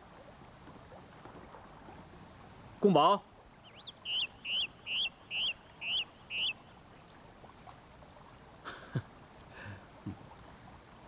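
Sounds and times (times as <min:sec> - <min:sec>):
bird chirping: 0:03.6 - 0:06.8.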